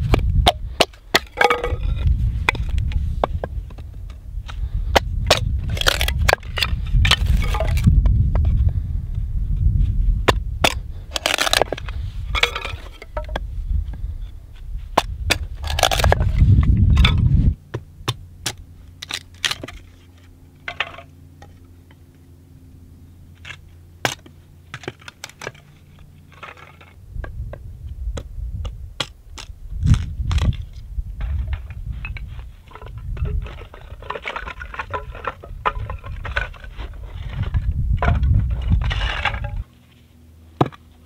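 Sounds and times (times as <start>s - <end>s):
dry wood splitting: 0.0s - 8.5s, 10.2s - 13.4s, 14.9s - 21.0s, 23.4s - 27.0s, 28.2s - 31.8s, 32.7s - 39.7s
low rumble: 0.0s - 24.7s, 25.7s - 39.7s.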